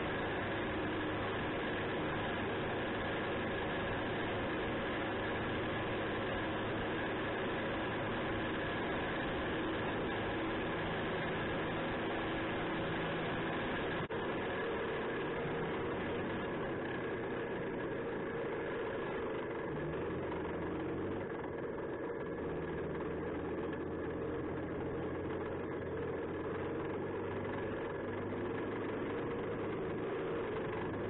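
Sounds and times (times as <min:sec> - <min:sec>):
diesel engine running: 0:00.0 - 0:31.0.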